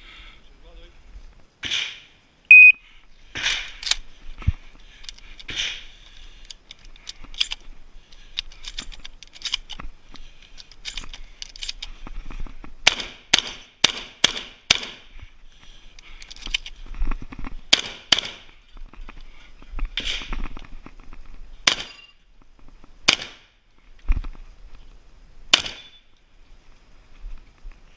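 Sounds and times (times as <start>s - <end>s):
sharp faint cracks: 1.0s - 2.4s, 3.0s - 27.9s
shotgun shots: 12.8s - 15.1s, 17.7s - 18.5s, 23.0s - 23.5s, 25.5s - 26.0s.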